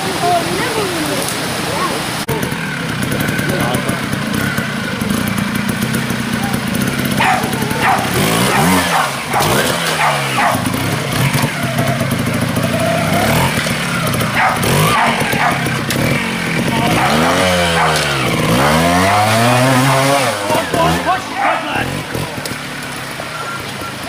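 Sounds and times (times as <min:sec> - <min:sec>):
motorcycle engine revving: 0:00.0 - 0:24.0
water splashing: 0:00.0 - 0:24.0.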